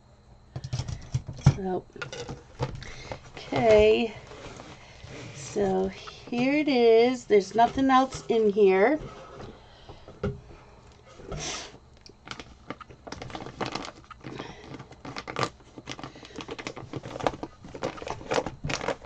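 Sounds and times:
plastic wrapping crinkling: 2.0 - 9.7, 12.0 - 19.0.

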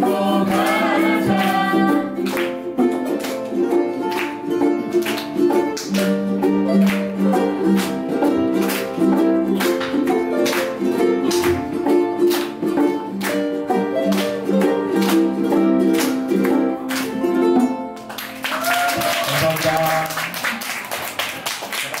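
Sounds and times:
ukuleles strumming: 0.0 - 22.0
audience applause: 18.0 - 22.0.

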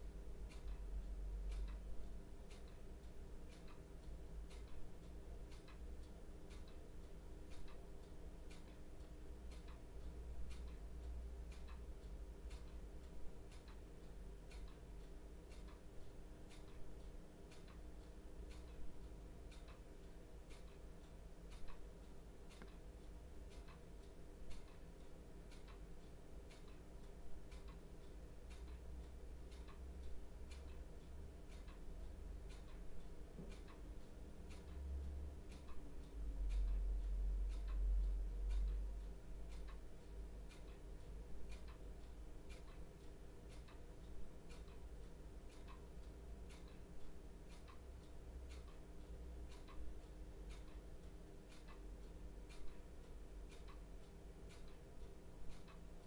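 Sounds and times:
clock ticking: 0.0 - 56.0
low room hum: 0.0 - 56.0.

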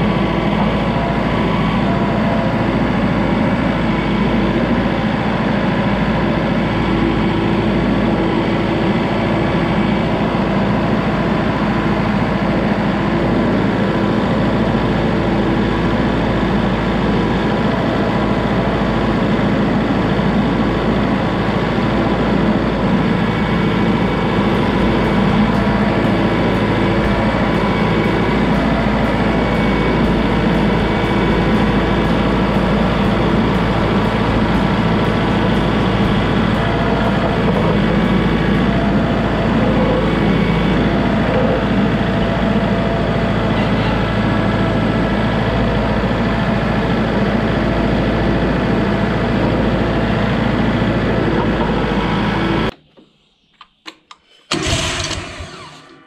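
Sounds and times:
tractor diesel engine running: 0.0 - 52.8, 54.5 - 56.0
clicks: 52.7 - 55.2
engine cranking: 54.1 - 56.0.

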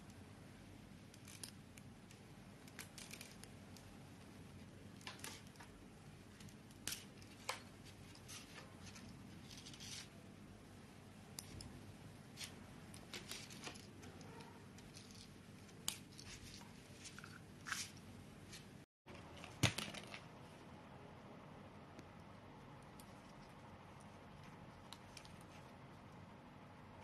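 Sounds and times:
wires clicking: 1.0 - 10.1, 11.3 - 18.1, 22.0 - 26.3.

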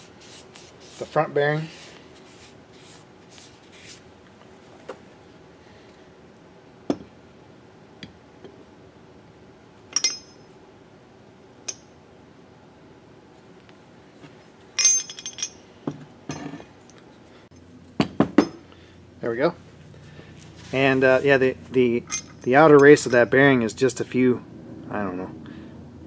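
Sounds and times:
metallic clinks and knocks: 10.0 - 10.4, 14.8 - 15.6, 22.0 - 23.4.

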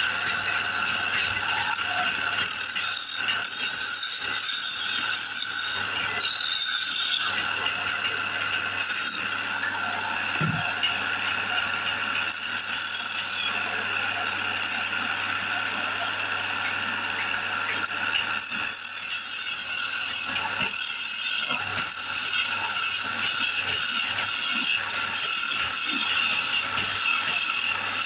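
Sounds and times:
wood lathe whining: 1.3 - 10.2, 11.6 - 14.1, 18.2 - 28.0
turning tool scraping wood: 2.4 - 7.6, 18.4 - 28.0.

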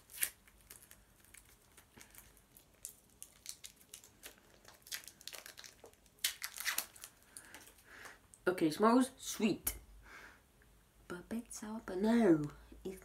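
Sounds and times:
wrapper crinkling: 0.0 - 7.8.

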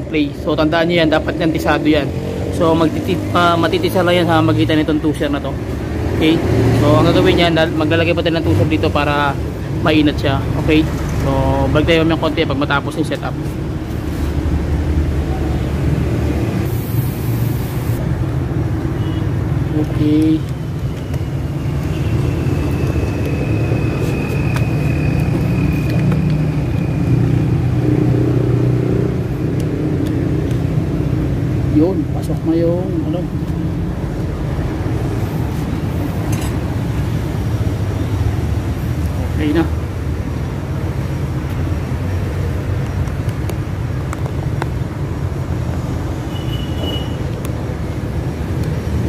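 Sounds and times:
engine droning: 19.6 - 41.0.

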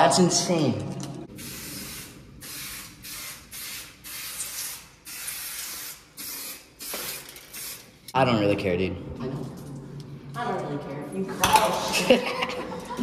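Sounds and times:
spray can hissing: 1.3 - 8.0.

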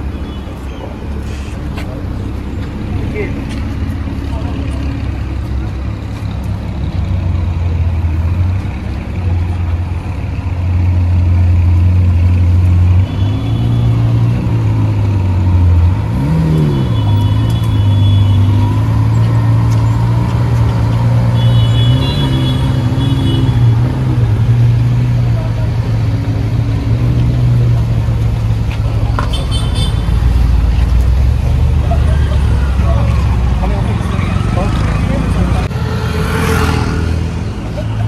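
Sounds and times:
car engines droning: 0.0 - 38.0
engine rev: 10.6 - 38.0.

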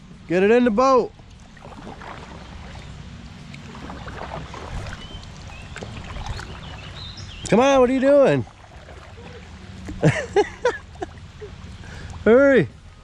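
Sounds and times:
wind rumble on microphone: 1.5 - 7.9.

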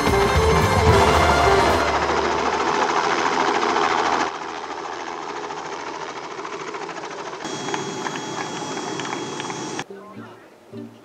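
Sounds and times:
helicopter engine noise: 0.0 - 9.8
helicopter rotor beating: 0.0 - 9.8
steady high tone: 7.5 - 10.4.

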